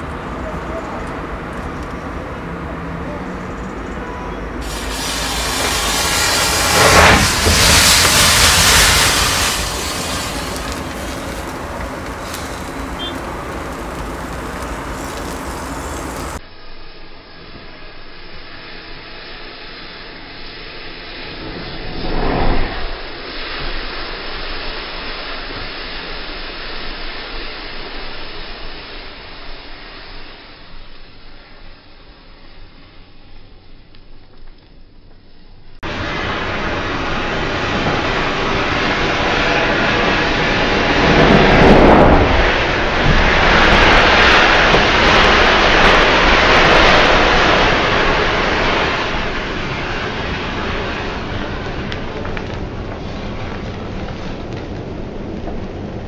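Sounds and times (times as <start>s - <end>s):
burning matches hissing: 4.6s - 16.4s
matches flaring whoosh: 4.6s - 16.4s, 21.1s - 23.4s.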